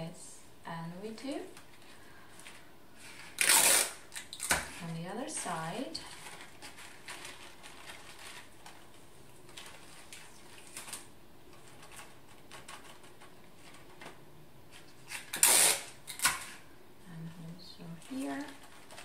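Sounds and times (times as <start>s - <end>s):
paper lantern rustling: 1.5s - 16.7s, 17.4s - 19.0s
sticky tape pulled and torn: 3.2s - 4.7s, 15.1s - 16.6s.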